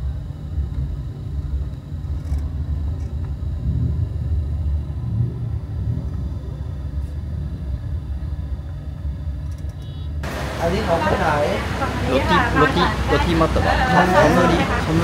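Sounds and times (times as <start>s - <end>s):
low rumble: 0.0s - 10.6s.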